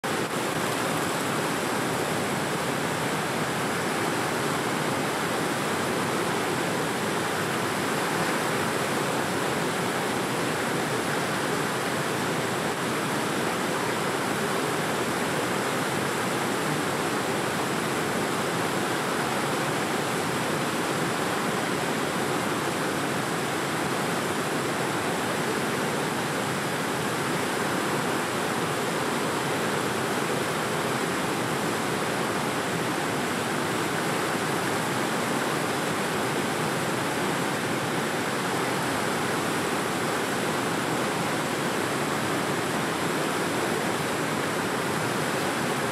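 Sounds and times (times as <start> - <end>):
river water rushing: 0.0 - 45.9.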